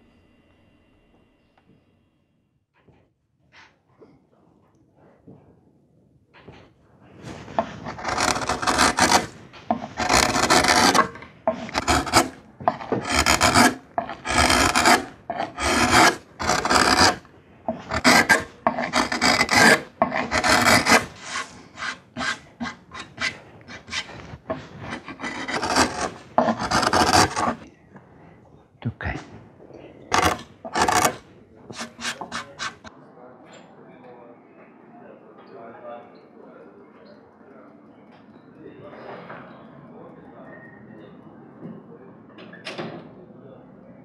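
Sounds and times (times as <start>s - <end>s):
carving gouge scraping wood: 7.2s - 27.6s, 30.0s - 32.9s.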